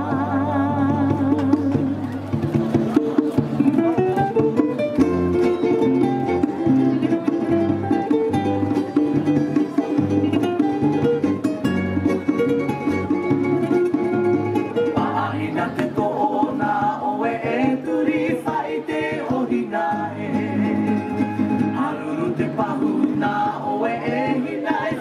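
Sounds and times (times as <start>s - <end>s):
person singing: 0.0s - 2.0s
strummed ukulele: 0.0s - 25.0s.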